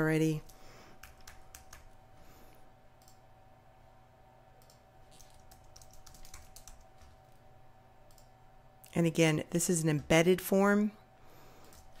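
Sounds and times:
keyboard and mouse clicks: 0:01.0 - 0:02.0, 0:04.6 - 0:07.2.

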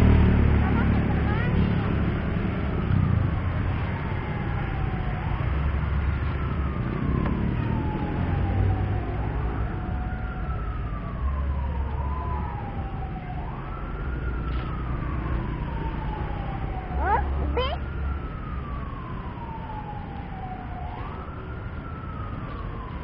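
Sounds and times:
low rumble of traffic: 0:00.0 - 0:23.0
siren wailing: 0:02.7 - 0:23.0.

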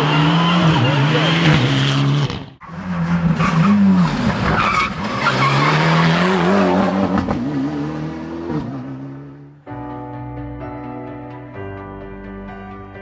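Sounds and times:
rally car engine at full throttle: 0:00.0 - 0:09.6.

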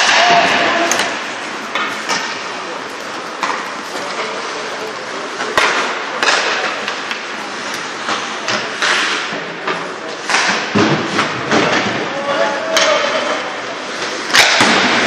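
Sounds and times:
skates scraping ice: 0:00.0 - 0:11.1
arena crowd hubbub: 0:00.0 - 0:15.0
knocks of sticks and puck: 0:07.8 - 0:12.1, 0:14.0 - 0:15.0.

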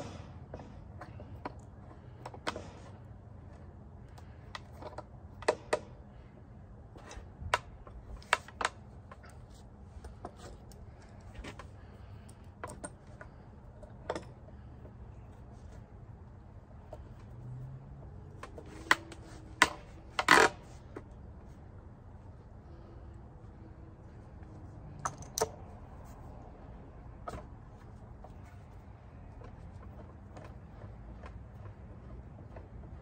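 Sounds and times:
metal clamps clicking and knocking: 0:10.0 - 0:15.0, 0:24.9 - 0:25.7.

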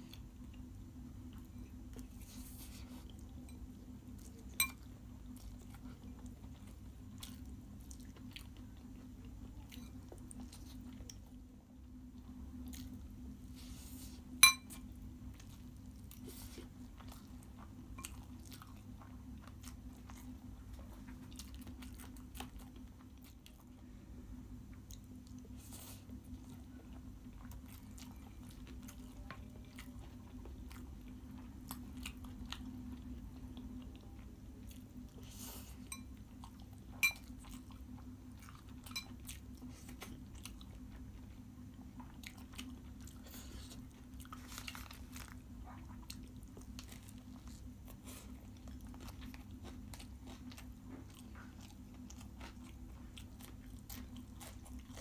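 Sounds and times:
person chewing noodles: 0:00.0 - 0:11.4, 0:12.5 - 0:23.8, 0:24.7 - 0:55.0
fork clinking against glass bowl: 0:14.4 - 0:14.8.

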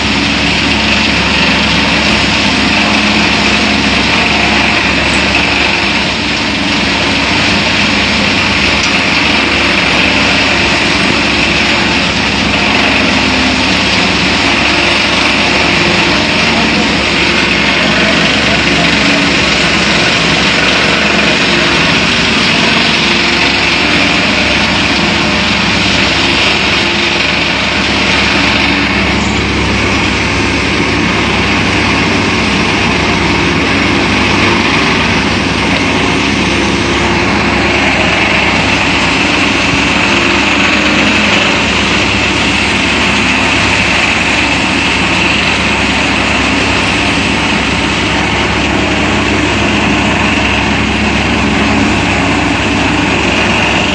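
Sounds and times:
thresher machine running: 0:00.0 - 0:53.9.

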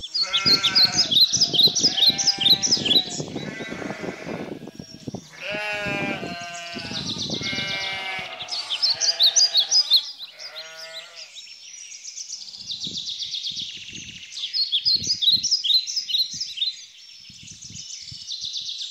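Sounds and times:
small birds chirping: 0:00.0 - 0:18.9
sheep bleating: 0:00.2 - 0:11.3.

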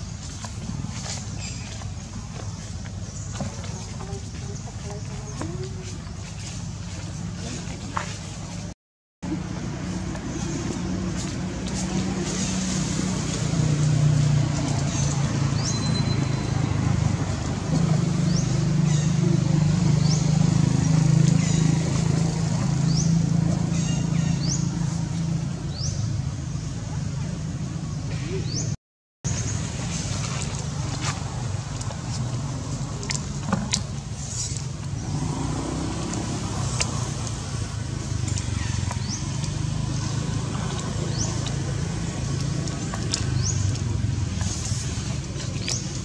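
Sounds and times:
engine humming: 0:00.0 - 0:46.0.

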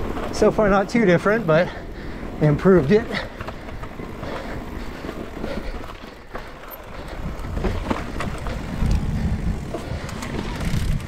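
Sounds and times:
bike rattling and knocking: 0:00.0 - 0:11.0
bike tyres skidding on dirt: 0:00.0 - 0:11.0
wind on the microphone: 0:07.0 - 0:11.0.

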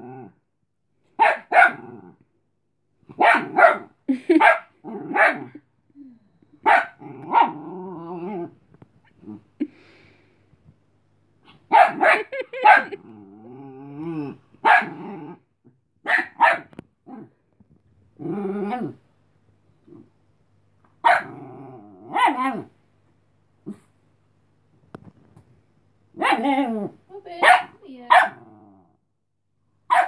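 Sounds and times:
small dog barking: 0:01.2 - 0:01.8, 0:03.1 - 0:05.5, 0:06.6 - 0:07.6, 0:11.6 - 0:13.0, 0:14.6 - 0:14.9, 0:16.0 - 0:16.8, 0:21.0 - 0:21.4, 0:22.1 - 0:22.7, 0:26.2 - 0:26.6, 0:27.4 - 0:28.4
dog growling: 0:06.8 - 0:09.8, 0:12.8 - 0:15.8, 0:18.2 - 0:19.0, 0:21.1 - 0:22.7, 0:28.2 - 0:29.0.

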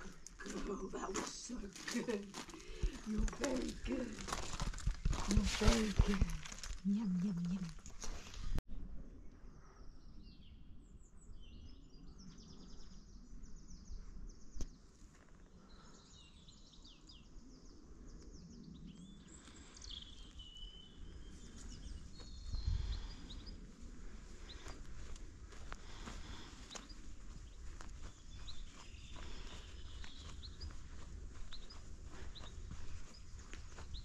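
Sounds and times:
birds singing and chirping: 0:15.6 - 0:23.7, 0:24.4 - 0:34.0.

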